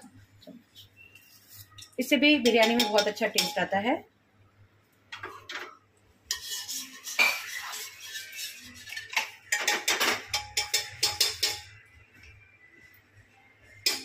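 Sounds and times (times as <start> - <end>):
spoon clinking on metal: 2.4 - 3.7, 9.0 - 11.8, 13.8 - 14.0.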